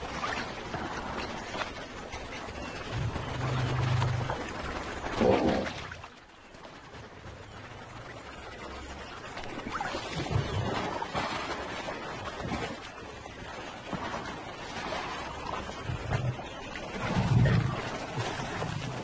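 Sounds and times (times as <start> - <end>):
water sloshing and lapping: 0.0 - 19.0
low rumble: 2.4 - 9.5.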